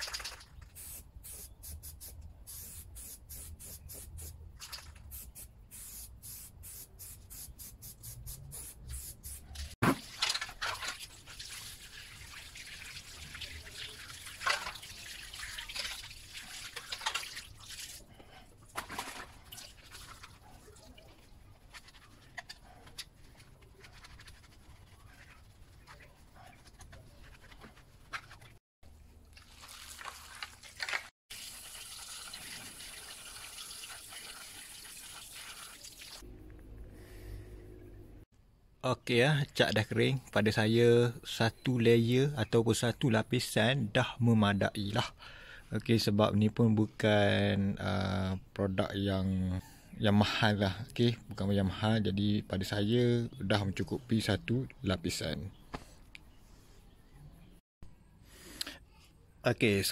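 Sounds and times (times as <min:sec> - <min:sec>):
spray can bursts: 0:00.8 - 0:04.3, 0:05.1 - 0:09.5
water splashing while scrubbing: 0:09.8 - 0:18.1
garden hose running: 0:10.9 - 0:18.1, 0:29.3 - 0:36.2.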